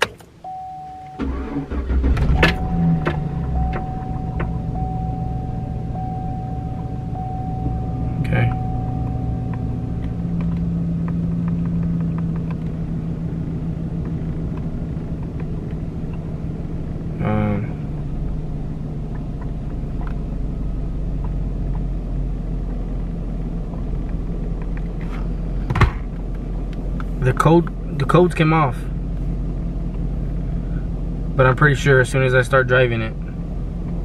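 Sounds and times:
truck cab rumble and hum: 0.0 - 34.0
brief pitched tone: 0.4 - 10.3.

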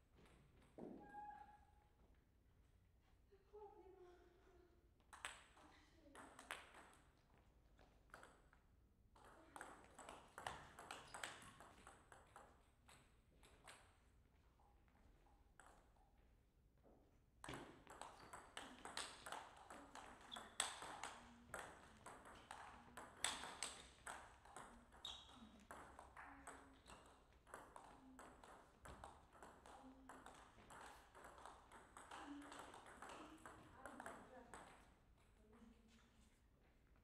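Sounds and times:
table tennis ball clicking: 17.5 - 34.8.

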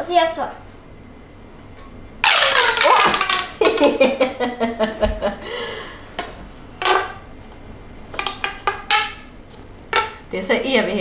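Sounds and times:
plastic pop tube clicking: 2.2 - 3.8, 6.8 - 7.2, 8.2 - 9.3, 9.9 - 10.2.

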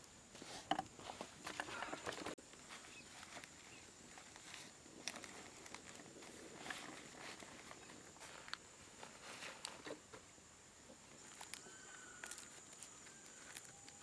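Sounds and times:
leaves crinkling being folded: 1.8 - 10.2, 11.0 - 14.0
dry leaves rustling and crackling: 2.5 - 9.8, 11.2 - 14.0.

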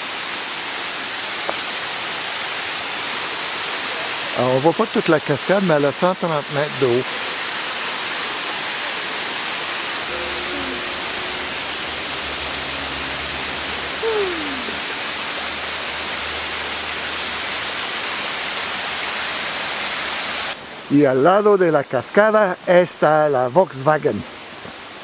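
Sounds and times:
waterfall roaring: 0.0 - 20.7
faint falling tone: 10.0 - 15.1.

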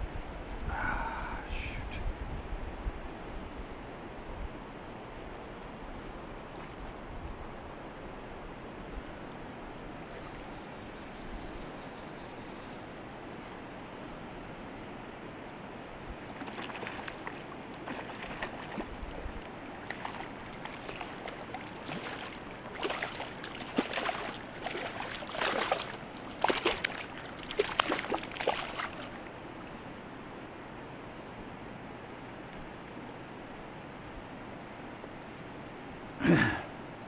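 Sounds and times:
fish splashing at water surface: 16.3 - 19.2, 19.8 - 29.2.

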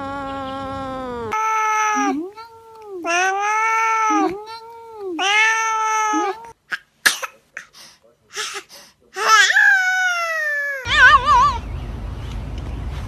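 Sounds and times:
cat yowling: 0.0 - 6.6.

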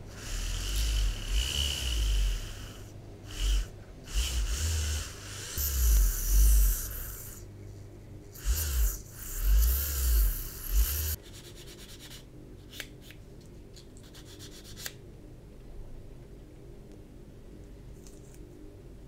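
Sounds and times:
wavering motor whine: 0.0 - 7.4, 8.4 - 11.2
rotary tool grinding plastic: 0.2 - 7.3, 8.4 - 11.2
faint clicks of handled part: 17.6 - 18.4.

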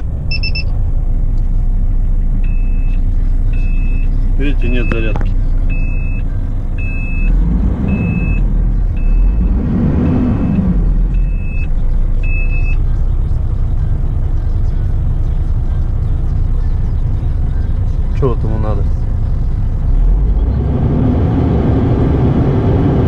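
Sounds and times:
diesel engine rumble: 0.0 - 23.0
high electronic beep: 0.2 - 0.8, 2.4 - 12.9.

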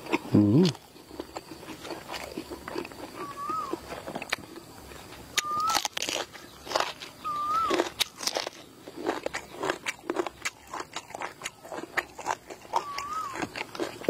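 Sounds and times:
chewing and crunching food: 0.0 - 14.0
short whistled call: 5.4 - 5.9, 7.2 - 7.8.

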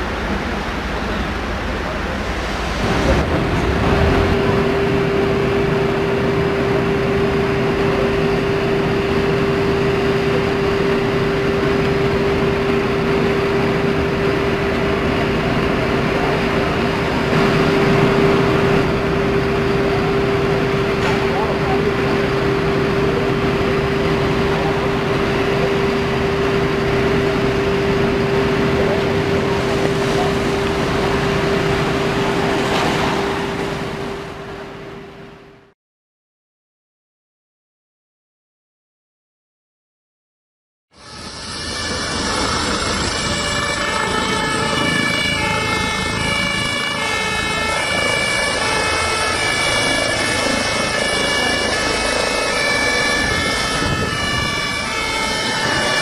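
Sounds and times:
engine and pump drone: 0.0 - 35.7, 40.9 - 56.0
mid-pitched hum: 0.0 - 35.7
traffic noise: 0.0 - 35.7, 41.0 - 56.0
two-tone siren: 4.1 - 35.7, 40.9 - 56.0.

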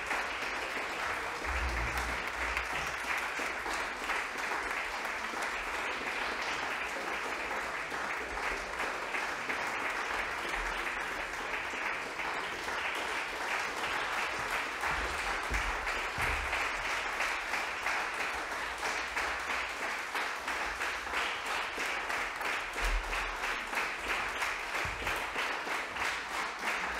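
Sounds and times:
audience applauding: 0.0 - 26.9.

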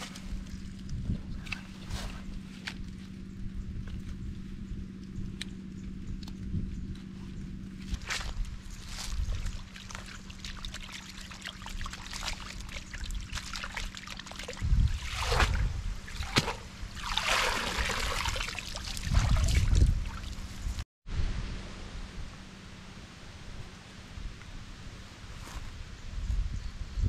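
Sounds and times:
water sloshing and splashing: 7.9 - 20.8.

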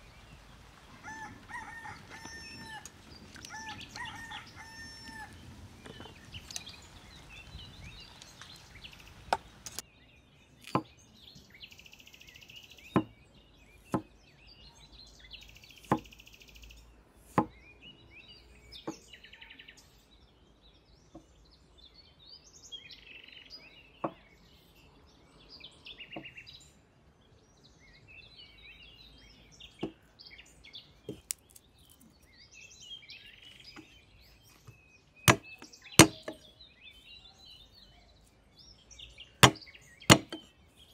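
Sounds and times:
birds chirping: 0.0 - 40.9
cleaver chopping on wooden board: 12.9 - 13.1, 13.9 - 14.1, 15.8 - 16.1, 35.3 - 36.4, 39.4 - 40.4.

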